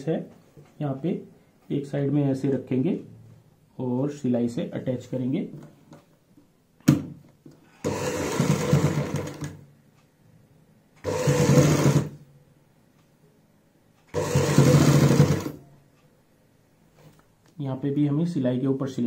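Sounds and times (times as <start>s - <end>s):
sewing machine stitching: 7.8s - 9.6s, 11.0s - 12.2s, 14.1s - 15.6s.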